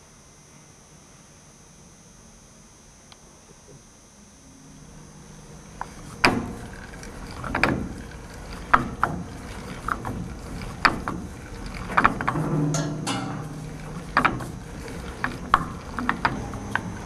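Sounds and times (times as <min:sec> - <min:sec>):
crank and chain clacking: 0:05.8 - 0:17.0.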